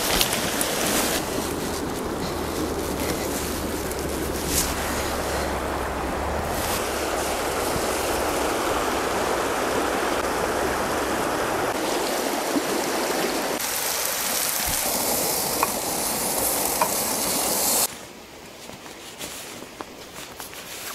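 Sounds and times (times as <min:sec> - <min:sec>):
river rushing over stones: 0:00.0 - 0:17.9
wind: 0:00.0 - 0:20.9.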